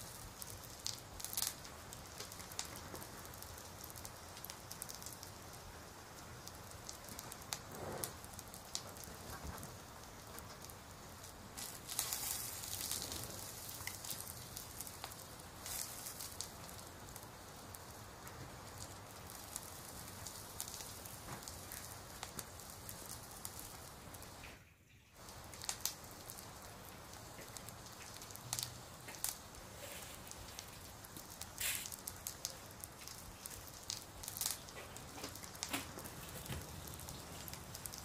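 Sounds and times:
fire crackling with pops: 0.0s - 38.0s.

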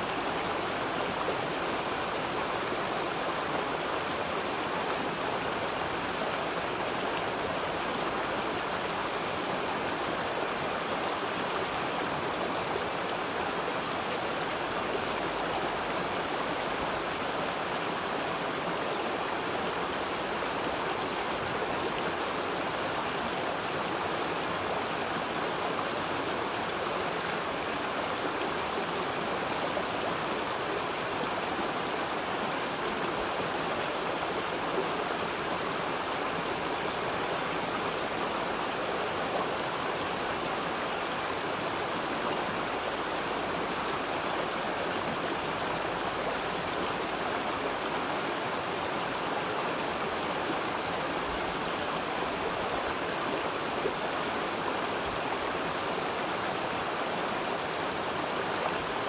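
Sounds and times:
stream water flowing: 0.0s - 59.0s.

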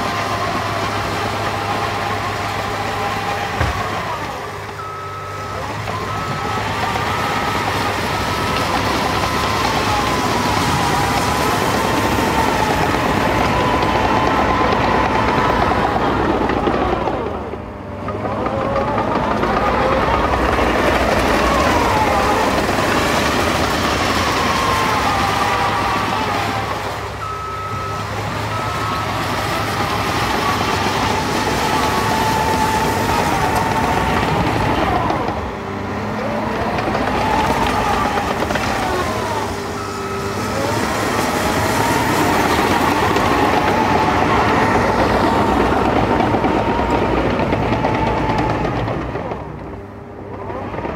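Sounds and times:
diesel engine running under load: 0.0s - 50.9s
backup alarm beeps: 3.9s - 9.8s, 23.5s - 31.2s, 39.0s - 44.9s.

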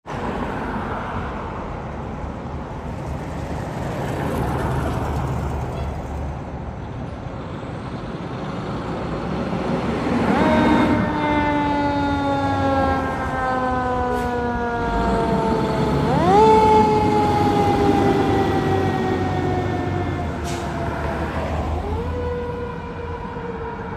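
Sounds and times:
mechanical siren wailing: 10.2s - 23.9s.

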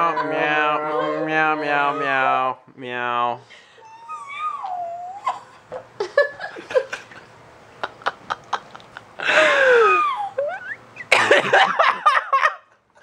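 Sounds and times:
people laughing: 0.0s - 2.4s, 5.6s - 12.8s
high falling cry: 0.0s - 2.6s, 9.2s - 11.2s.

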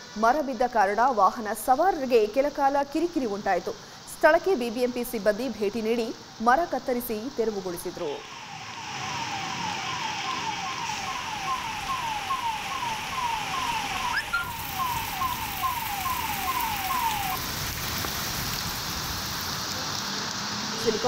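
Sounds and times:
heavy rain: 0.0s - 21.0s
electronic siren wailing: 8.2s - 17.5s.

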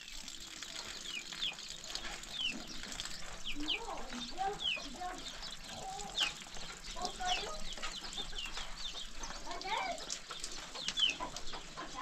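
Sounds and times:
chickens clucking: 0.6s - 12.0s.

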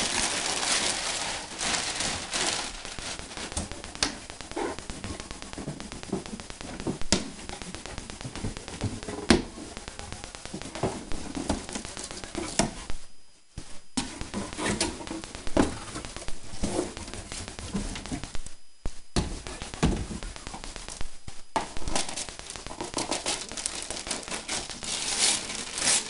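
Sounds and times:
cardboard scraping and rustling: 0.0s - 3.8s, 14.0s - 18.3s, 21.9s - 26.0s.

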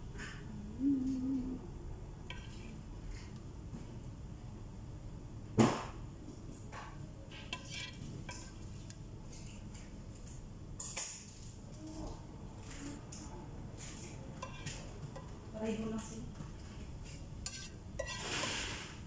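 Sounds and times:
spoon knocking and scraping in pot: 7.3s - 8.6s, 13.9s - 15.4s, 17.0s - 18.9s.

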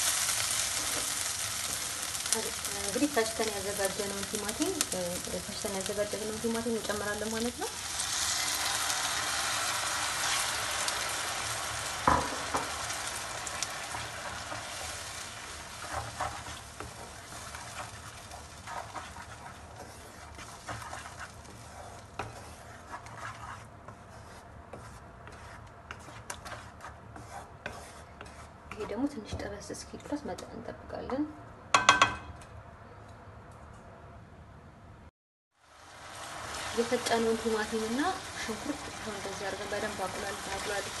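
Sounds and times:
oil sizzling in frying pan: 0.0s - 22.4s, 35.6s - 41.0s
knock on pan: 12.0s - 12.8s, 31.7s - 32.3s
wooden spatula scraping sauce: 15.7s - 29.2s.

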